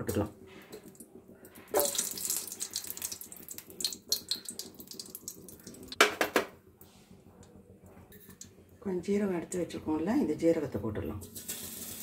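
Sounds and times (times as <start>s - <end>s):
ghee sizzling in hot oil: 0.1s - 6.0s, 11.2s - 12.0s
oil spitting: 0.7s - 6.0s.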